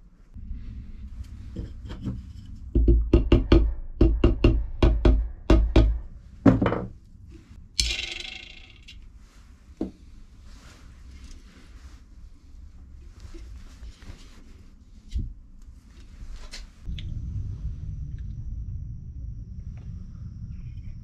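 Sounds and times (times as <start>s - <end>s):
hard knocks: 2.7s - 6.9s.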